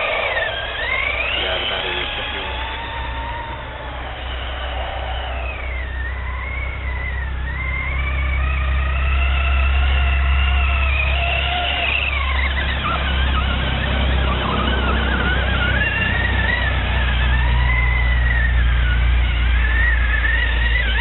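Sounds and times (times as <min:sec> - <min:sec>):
electric motor whining: 0:00.0 - 0:21.0.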